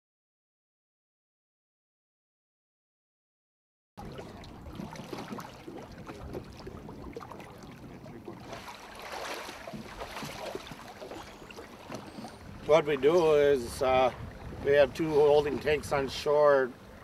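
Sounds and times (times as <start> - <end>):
water splashing and sloshing: 4.0 - 17.0.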